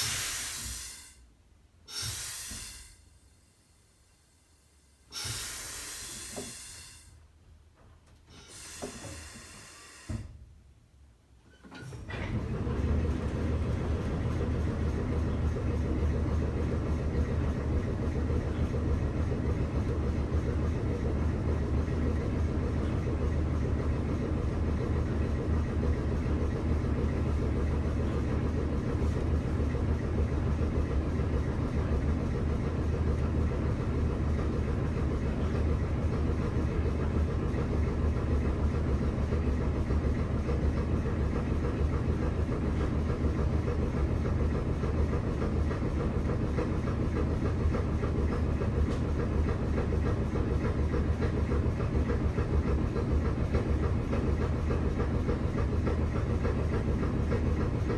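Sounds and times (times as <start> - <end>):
air brake hissing: 0.0 - 7.2, 8.3 - 10.4
air compressor humming and rattling: 0.0 - 10.6, 11.4 - 57.9.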